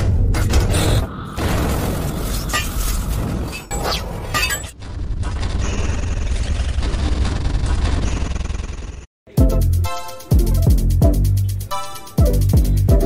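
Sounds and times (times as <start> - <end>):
shattering crashes: 0.5 - 3.7
rumbling music: 9.3 - 13.0.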